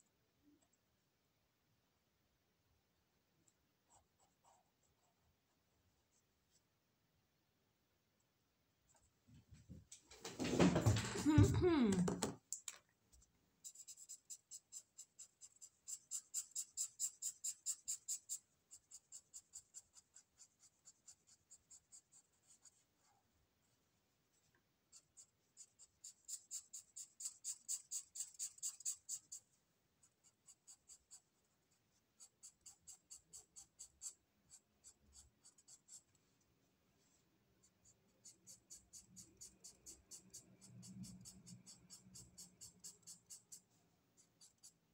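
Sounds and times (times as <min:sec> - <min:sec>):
marker scribbling on paper: 0:13.6 - 0:23.1, 0:24.9 - 0:36.3, 0:37.6 - 0:44.8.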